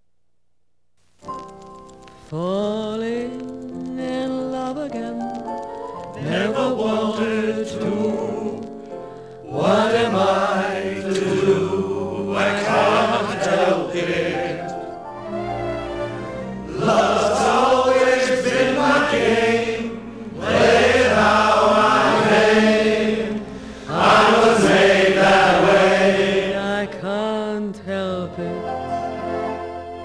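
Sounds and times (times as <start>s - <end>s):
choir singing music: 6.0s - 30.0s.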